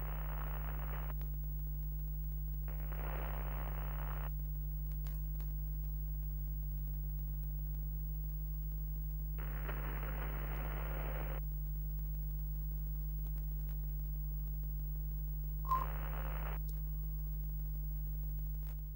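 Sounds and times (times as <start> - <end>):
electrical mains hum: 0.0 - 18.9
hissy static: 0.0 - 18.9
brief beep: 15.7 - 16.0.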